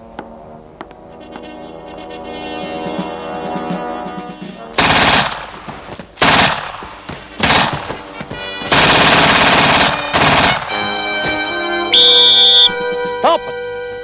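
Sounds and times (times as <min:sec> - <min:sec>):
submachine gun automatic fire: 0:04.8 - 0:05.6, 0:06.2 - 0:06.8, 0:07.4 - 0:07.9, 0:08.7 - 0:10.8.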